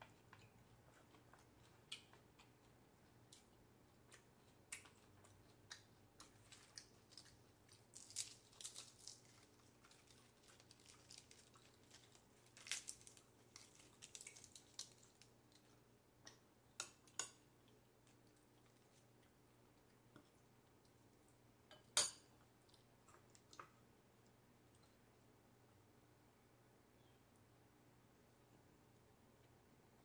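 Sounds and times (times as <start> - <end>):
lettuce leaves crinkling: 6.3 - 15.6.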